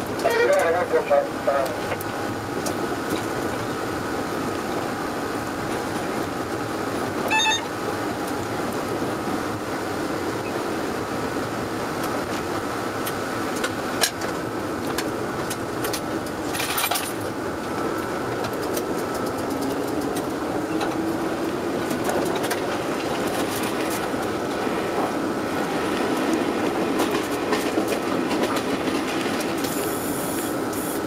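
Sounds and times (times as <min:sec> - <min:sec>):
train rumble and rattle: 0:00.0 - 0:31.0
wheels clicking over rail joints: 0:12.0 - 0:30.8.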